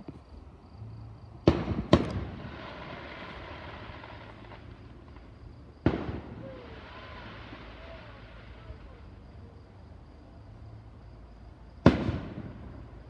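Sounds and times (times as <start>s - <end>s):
firework shells booming: 1.4s - 7.9s, 11.8s - 12.9s.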